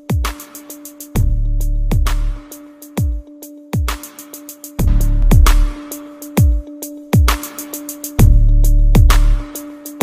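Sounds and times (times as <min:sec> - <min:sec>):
ticking hi-hats: 0:00.0 - 0:10.0
deep bass kicks: 0:01.2 - 0:02.4, 0:04.8 - 0:05.8.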